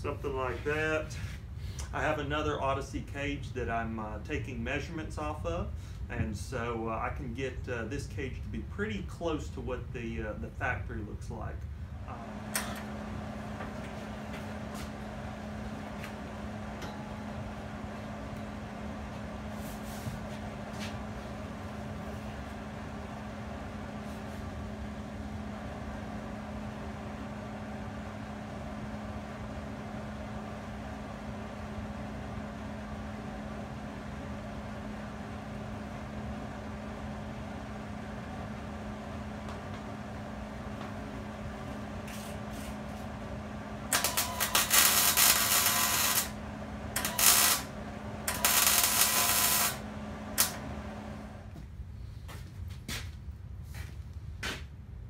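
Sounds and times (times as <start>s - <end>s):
steady hum: 0.0s - 55.0s
crackling welding arc: 43.9s - 46.4s, 47.0s - 47.7s, 48.3s - 49.8s, 50.4s - 50.6s.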